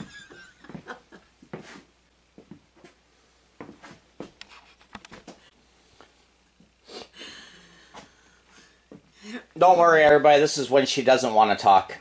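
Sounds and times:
small clicks and rustles: 4.3s - 6.2s.

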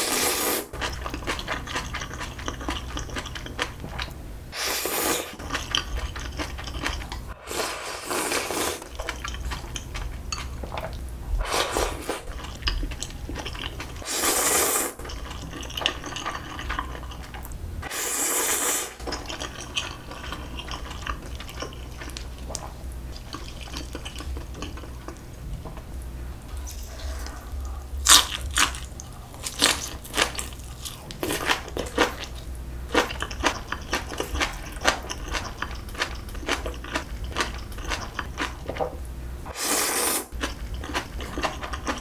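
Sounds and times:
slurping noodles: 0.0s - 0.7s, 4.6s - 5.4s, 7.4s - 9.0s, 14.0s - 15.7s, 17.8s - 19.0s, 39.5s - 40.3s
chewing: 0.8s - 4.2s, 5.4s - 7.3s, 8.3s - 11.0s, 12.0s - 14.0s, 14.9s - 17.5s, 19.0s - 25.8s, 26.5s - 38.8s, 40.3s - 42.0s.

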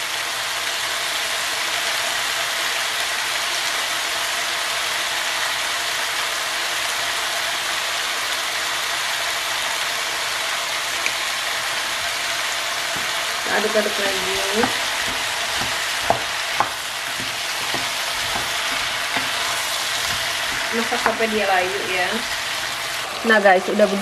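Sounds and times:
vegetables sizzling: 0.0s - 24.0s
spice grinder crackling: 10.9s - 23.4s.

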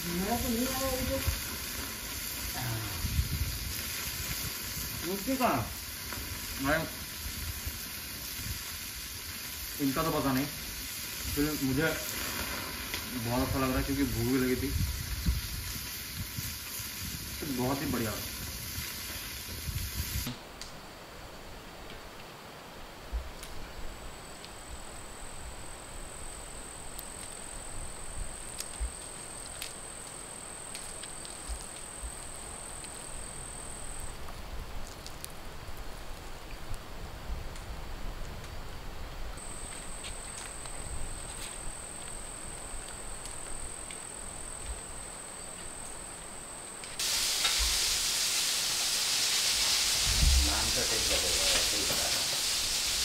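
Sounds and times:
loud even hiss: 0.0s - 20.9s, 23.2s - 35.6s, 39.2s - 53.0s
insect trilling: 24.1s - 34.3s, 39.4s - 53.0s
faint scattered clicks: 28.4s - 33.1s, 39.4s - 47.6s.

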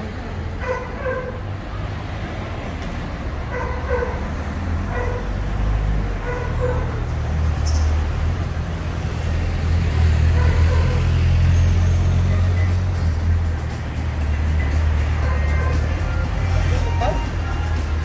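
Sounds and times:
faint voices of passers-by: 0.0s - 18.0s
vehicle engine rumble: 0.0s - 18.0s.

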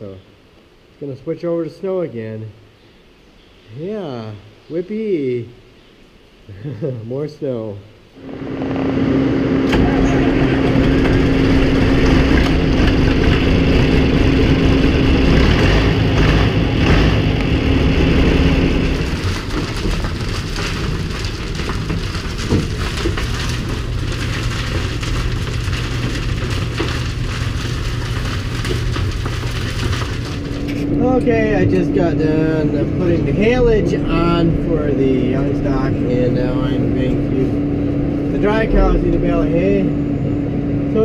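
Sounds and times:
held drone: 8.2s - 18.9s
tractor engine running: 8.2s - 41.0s.

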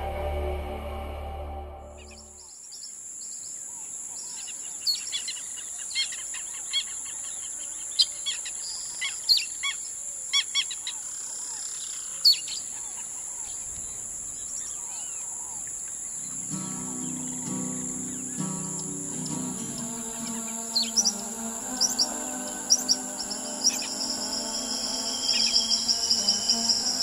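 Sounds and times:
birds chirping: 2.0s - 27.0s
high-pitched insect drone: 16.2s - 27.0s.

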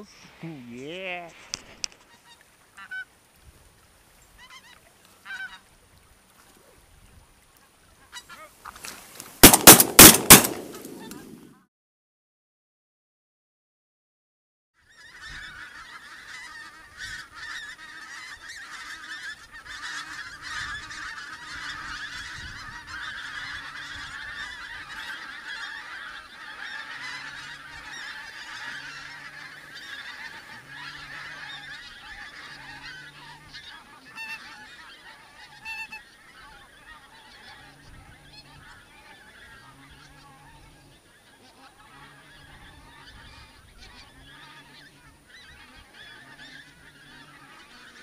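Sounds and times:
geese honking in flight: 2.1s - 3.1s, 4.4s - 5.7s, 8.0s - 8.6s, 9.4s - 11.4s, 14.8s - 48.0s.

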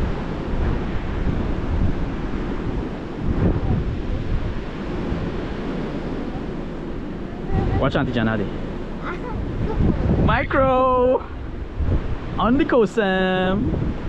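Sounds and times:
surf breaking on sandy beach: 0.0s - 14.0s
wind buffeting microphone: 0.0s - 14.0s.

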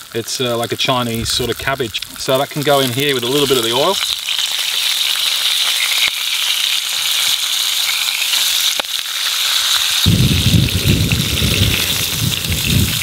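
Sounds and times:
food sizzling in a frying pan: 0.0s - 13.0s
wind on microphone: 1.1s - 2.3s, 10.1s - 13.0s.

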